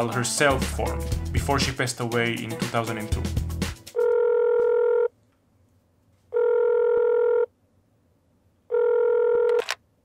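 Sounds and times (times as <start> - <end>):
telephone ringback tone: 4.0 - 5.1, 6.3 - 7.5, 8.7 - 9.6.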